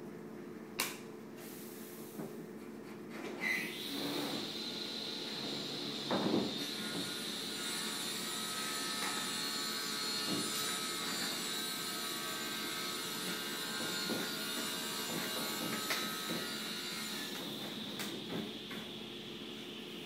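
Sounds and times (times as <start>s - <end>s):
steady high whine: 17.2s - 20.0s.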